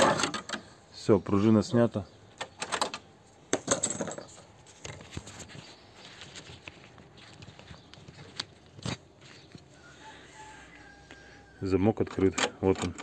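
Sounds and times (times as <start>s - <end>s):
metallic clicks and scraping: 12.0s - 13.0s.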